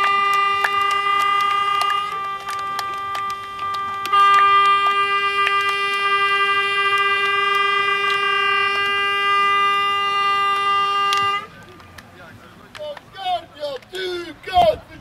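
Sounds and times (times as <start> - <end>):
horn long blast: 0.0 - 11.5.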